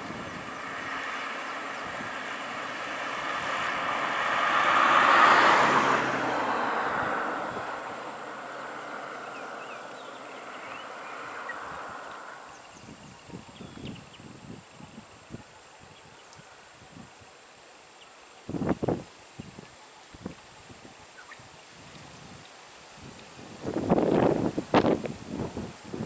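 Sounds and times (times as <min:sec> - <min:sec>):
car driving past: 0:00.0 - 0:12.8.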